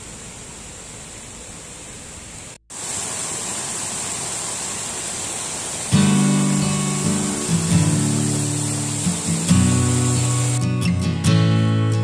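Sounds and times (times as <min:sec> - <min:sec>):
waterfall and river rapids rushing: 0:02.2 - 0:10.9
acoustic guitar strummed chords: 0:05.9 - 0:12.0.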